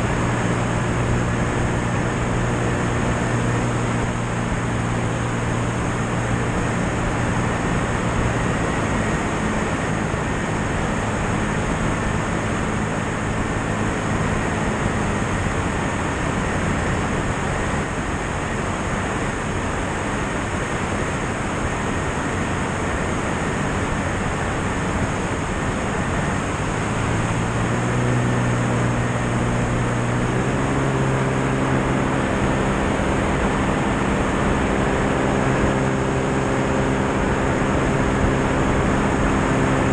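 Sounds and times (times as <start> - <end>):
airflow rushing over microphone: 0.0 - 39.9
propeller engine drone: 0.0 - 39.9.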